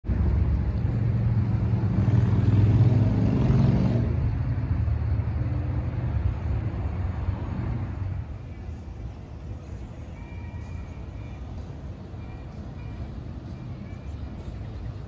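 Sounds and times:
vehicle passing: 0:00.1 - 0:09.7.

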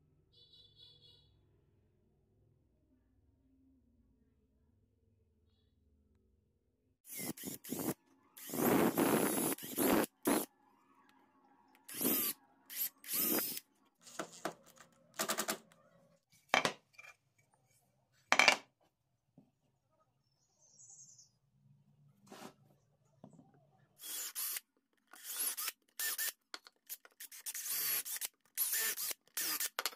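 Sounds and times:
power drill boring into wood: 0:07.1 - 0:10.5, 0:11.9 - 0:14.4, 0:24.0 - 0:26.4, 0:27.2 - 0:29.9.

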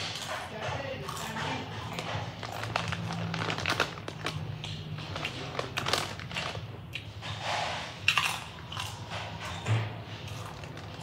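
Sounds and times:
chips being chewed crunching: 0:00.0 - 0:07.4, 0:08.0 - 0:11.0
plastic bag crinkling: 0:02.3 - 0:06.6.

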